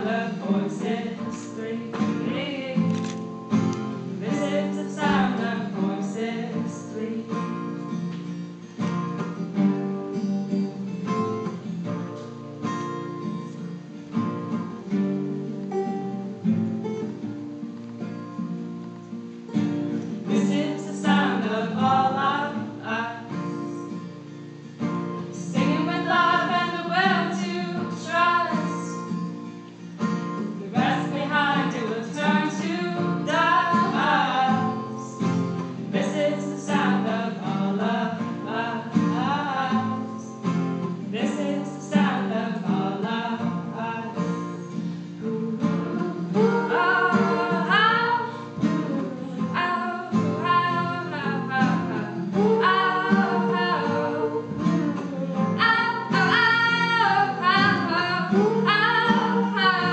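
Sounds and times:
women singing: 0.0 - 7.8, 20.2 - 24.0, 25.3 - 29.2, 30.5 - 59.9
acoustic guitars: 0.0 - 59.9.

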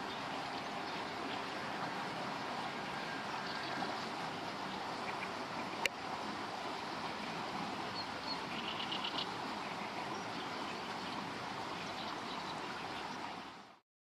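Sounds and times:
river water flowing: 0.0 - 13.8.

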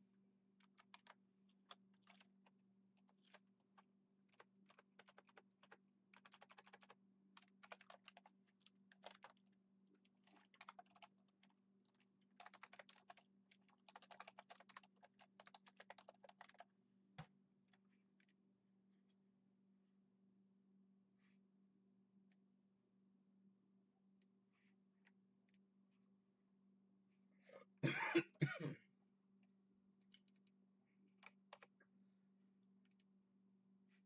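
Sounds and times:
computer keyboard typing: 0.6 - 16.7, 30.1 - 31.8.

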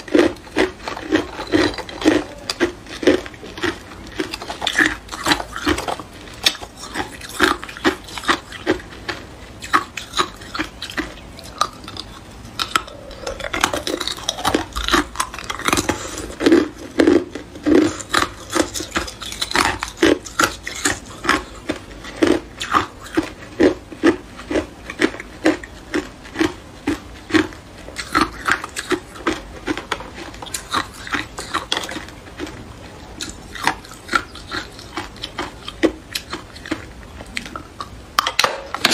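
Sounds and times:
ice cubes clinking: 0.2 - 5.8.

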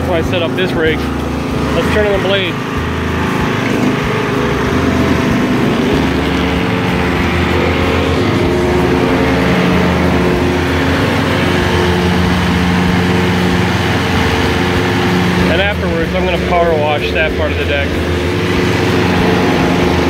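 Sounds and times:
hose water spraying: 0.0 - 20.0
riding lawn mower running: 0.0 - 20.0.

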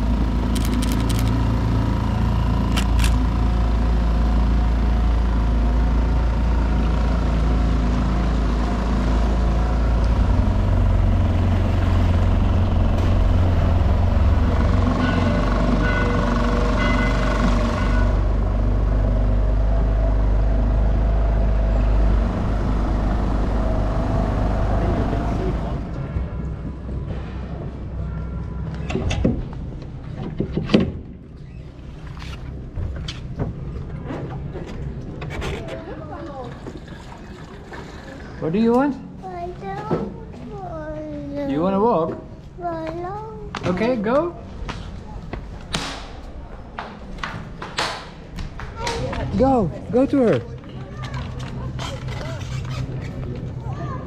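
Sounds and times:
boat engine humming: 0.0 - 26.8.

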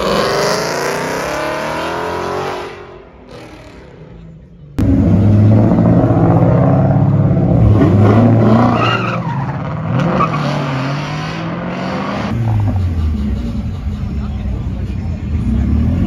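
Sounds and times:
car engine at high revs: 0.0 - 8.9
tires spinning and squealing: 6.4 - 14.2.

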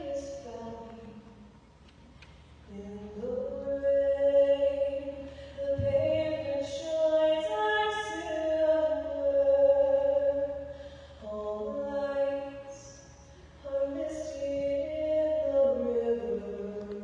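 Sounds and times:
woman singing: 0.0 - 1.5, 2.7 - 13.0, 13.6 - 17.0.

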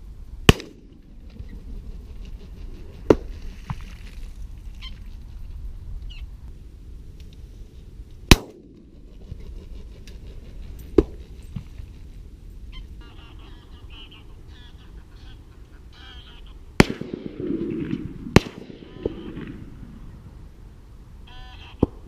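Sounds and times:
shotgun shots with echo: 0.5 - 0.9, 8.3 - 8.7, 16.8 - 19.7.

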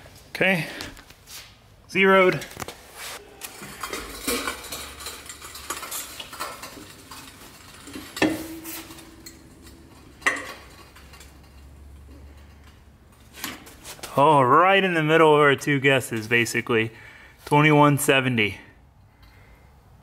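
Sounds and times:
metallic clanks and clicks: 3.4 - 13.7.

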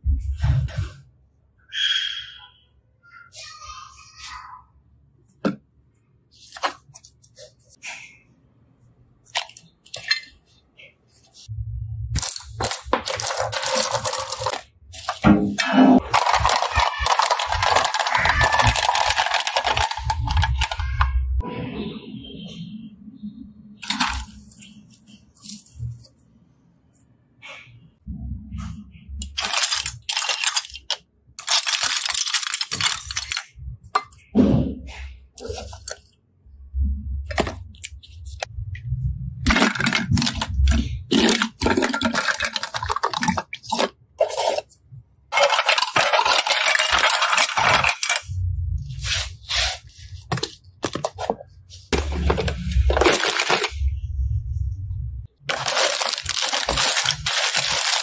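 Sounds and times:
plastic cases clattering: 12.2 - 21.0, 23.8 - 25.0, 29.2 - 34.3, 35.4 - 36.1, 37.3 - 38.5, 39.4 - 48.3, 49.0 - 53.8, 55.5 - 58.0.

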